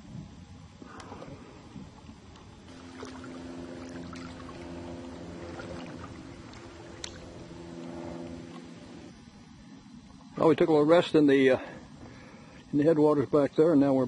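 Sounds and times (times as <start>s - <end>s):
faint water sounds: 0.8s - 10.3s
distant engine droning: 2.7s - 9.8s.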